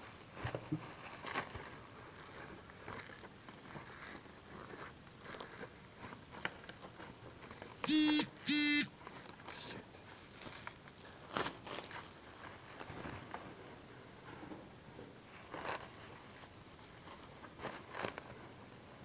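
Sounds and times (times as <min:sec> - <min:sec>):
mobile phone vibrating: 0:07.9 - 0:08.9.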